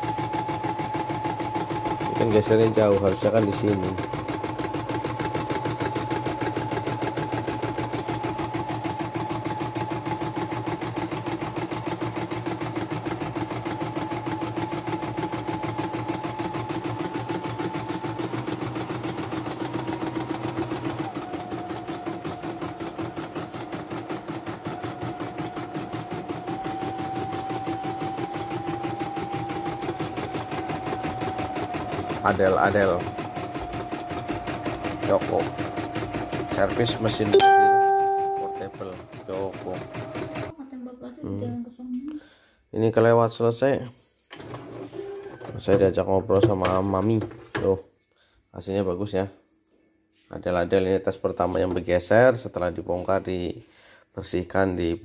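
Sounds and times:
embroidery machine stitching: 0:00.0 - 0:40.5
machine motor whine: 0:24.6 - 0:35.6.

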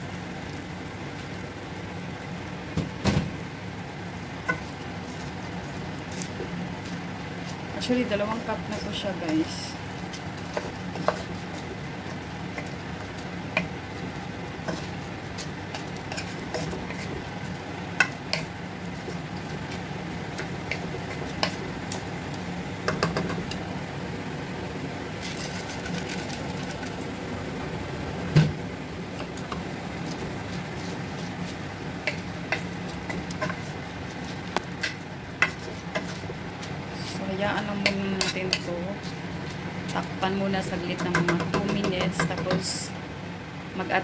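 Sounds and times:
steady low hum: 0:00.0 - 0:44.0
spatula scraping rice in pot: 0:14.6 - 0:17.2
spatula knocking against pot: 0:41.0 - 0:42.7.

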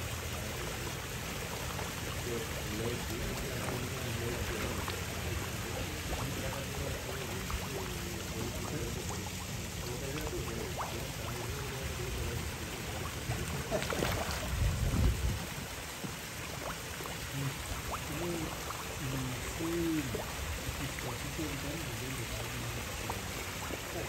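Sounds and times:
pond water splashing: 0:00.0 - 0:24.0.

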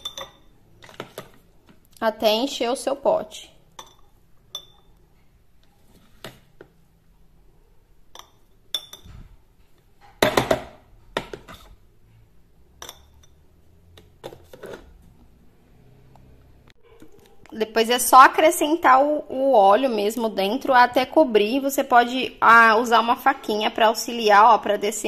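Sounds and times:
metal spoon clinking on glass: 0:00.0 - 0:00.5, 0:03.7 - 0:05.0, 0:08.1 - 0:09.1, 0:12.8 - 0:13.4.

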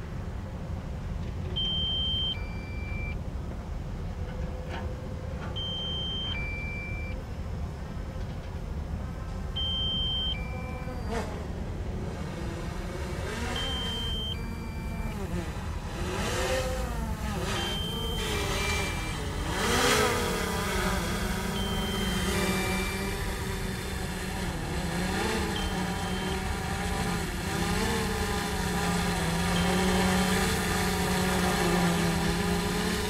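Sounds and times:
two-tone warning alarm: 0:01.6 - 0:03.2, 0:05.6 - 0:07.2, 0:09.6 - 0:11.3, 0:13.3 - 0:15.5, 0:16.5 - 0:33.0
excavator diesel engine rumbling: 0:07.7 - 0:33.0.

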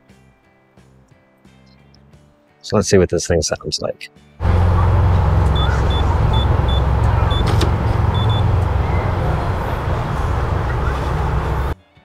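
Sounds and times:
loud steady low rumble: 0:04.4 - 0:11.8
keypad beeps: 0:05.6 - 0:08.5.

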